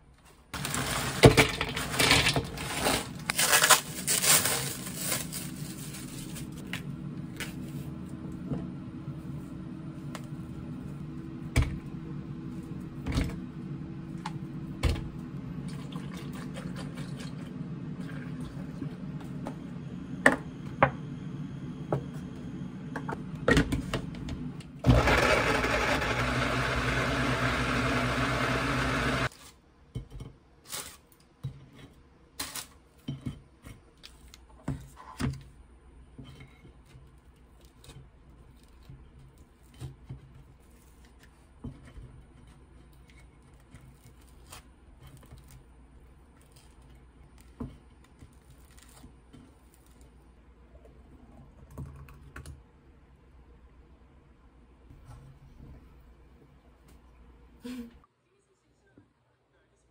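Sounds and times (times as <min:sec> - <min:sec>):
blender running: 0:24.8 - 0:29.3.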